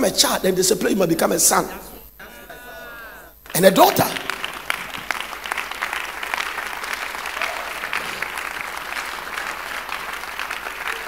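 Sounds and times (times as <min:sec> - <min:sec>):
crowd applauding: 0:03.4 - 0:11.0.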